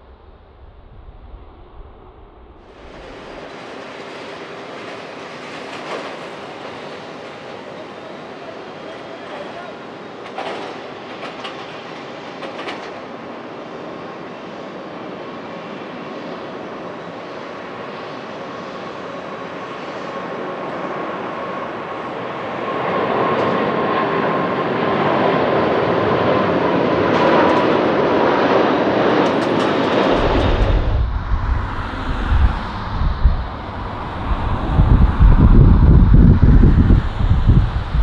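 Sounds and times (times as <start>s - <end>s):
low rumble: 0.0s - 4.2s, 29.8s - 38.0s
jet engines roaring: 0.0s - 38.0s
wind buffeting microphone: 28.9s - 38.0s.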